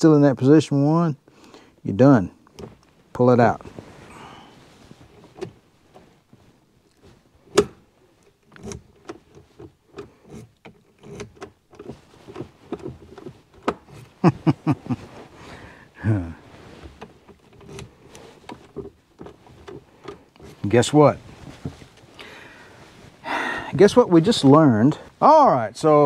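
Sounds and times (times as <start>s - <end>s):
cloth rubbing on microphone: 2.9s - 7.4s, 11.9s - 23.2s
handling clicks and knocks: 4.8s - 15.4s, 16.4s - 23.0s.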